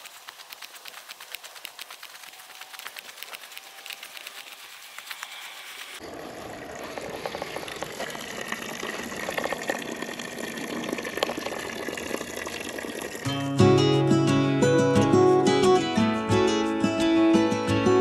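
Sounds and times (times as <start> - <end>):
water splashing onto dirt: 0.0 - 5.3.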